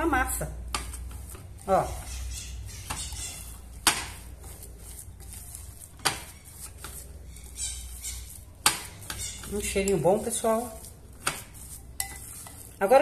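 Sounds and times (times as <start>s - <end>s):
spoon stirring thick dough: 0.0s - 13.0s.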